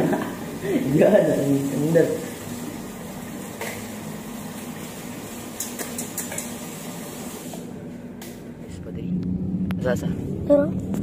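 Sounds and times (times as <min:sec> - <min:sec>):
tap water running into sink: 0:00.0 - 0:07.7.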